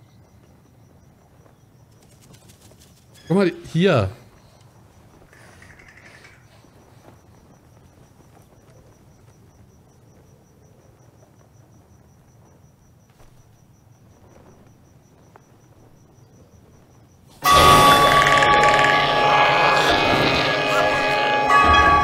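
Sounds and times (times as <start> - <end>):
crickets chirping: 0.0 - 22.0
sudden loud blast: 17.4 - 22.0.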